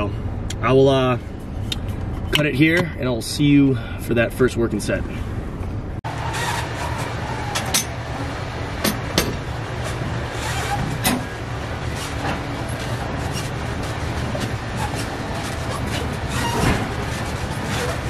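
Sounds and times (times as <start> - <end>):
low gym hum: 0.0 - 18.0
exercise machine clanks and knocks: 8.8 - 10.0.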